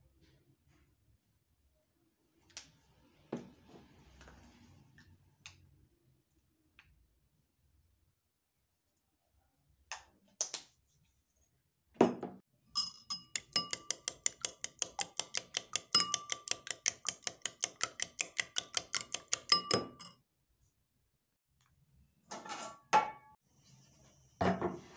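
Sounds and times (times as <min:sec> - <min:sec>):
spoon beating eggs in ceramic bowl: 0:12.7 - 0:20.2.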